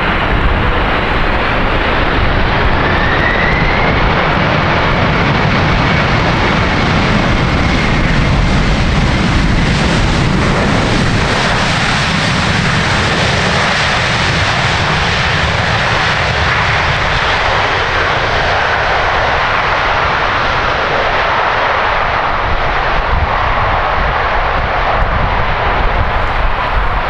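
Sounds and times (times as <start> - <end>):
jet engines roaring: 0.0 - 27.0.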